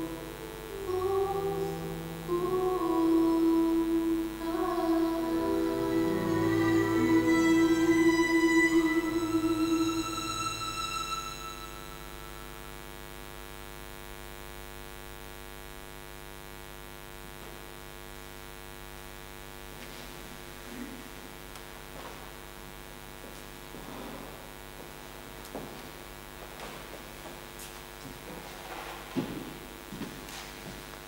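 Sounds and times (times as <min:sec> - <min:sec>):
violin bowed note: 0:04.4 - 0:12.8.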